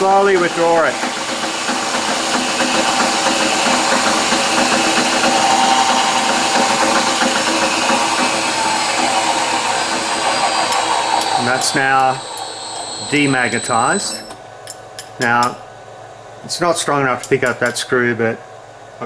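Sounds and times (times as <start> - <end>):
drill press motor whir: 0.0 - 14.4.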